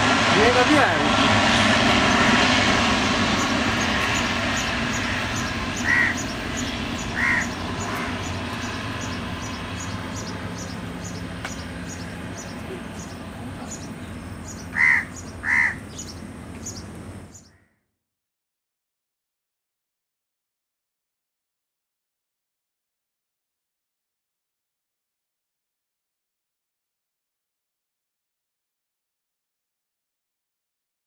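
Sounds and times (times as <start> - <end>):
turboprop propeller drone: 0.0 - 17.7
crows cawing: 4.5 - 9.1, 14.7 - 16.1, 17.4 - 17.8.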